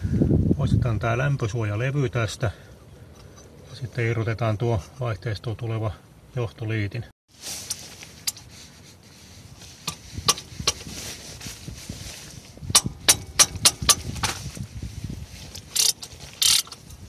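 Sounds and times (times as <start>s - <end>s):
hand ratchet clicking: 12.7s - 14.3s, 15.6s - 17.0s.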